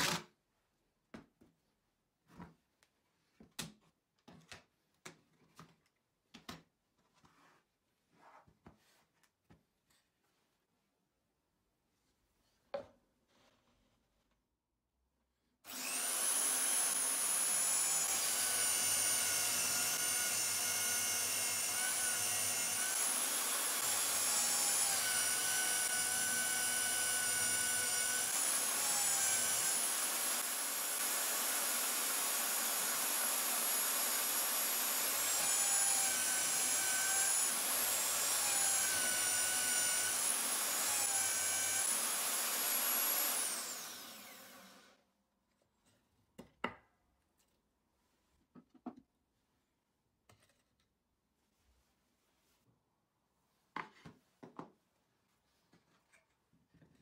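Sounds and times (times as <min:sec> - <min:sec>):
drill bit boring through plywood: 0:15.7 - 0:44.8
drill motor whining: 0:15.7 - 0:44.9.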